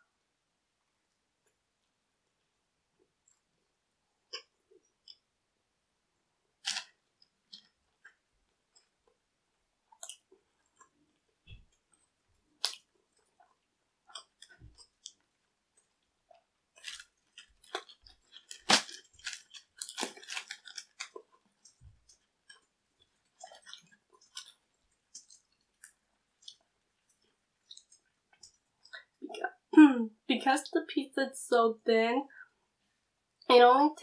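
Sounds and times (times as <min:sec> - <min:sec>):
pizza crust crackling: 0:06.6 - 0:09.0, 0:09.9 - 0:29.1
chewing: 0:09.9 - 0:29.5.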